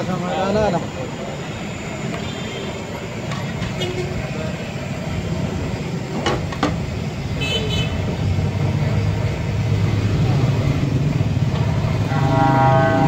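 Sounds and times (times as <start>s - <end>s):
street traffic engine rumble: 0.0s - 13.0s
high-pitched horn toot: 12.1s - 13.0s.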